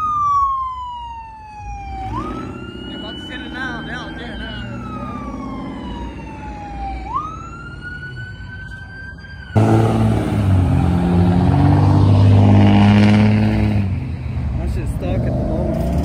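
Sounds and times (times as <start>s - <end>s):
siren wailing: 0.0s - 12.8s
engine revving hard: 9.6s - 14.0s, 15.1s - 16.0s.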